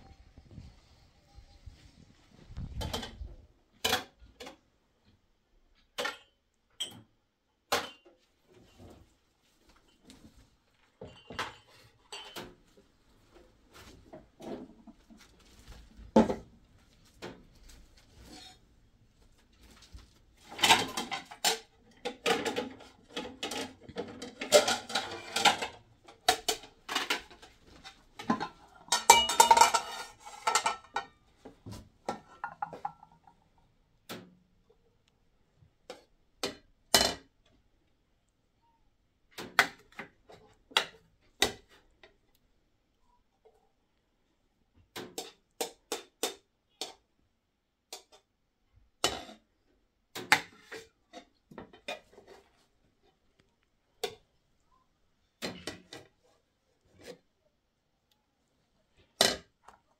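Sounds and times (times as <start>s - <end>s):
dishes and utensils clattering: 5.8s - 7.1s, 7.7s - 9.0s, 10.9s - 12.8s, 20.4s - 33.5s.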